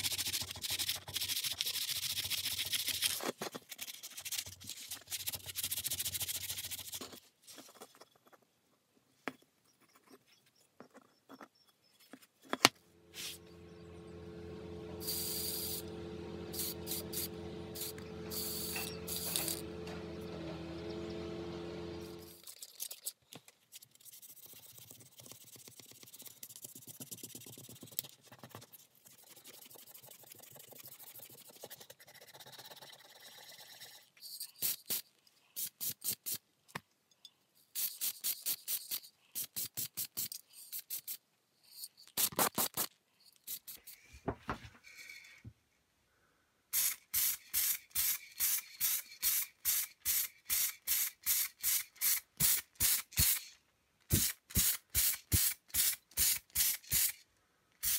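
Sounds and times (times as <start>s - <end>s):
sandpaper rubbing: 0.0s - 7.2s, 13.1s - 13.5s, 22.2s - 35.0s
spray paint can hissing: 15.0s - 15.9s, 16.5s - 19.6s, 33.1s - 36.4s, 37.7s - 41.2s, 42.2s - 44.0s, 46.7s - 53.5s, 54.1s - 57.2s.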